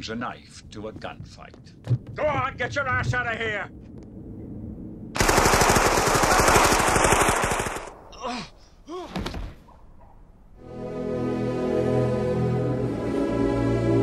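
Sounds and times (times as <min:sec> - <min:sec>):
submachine gun automatic fire: 0:05.2 - 0:08.1.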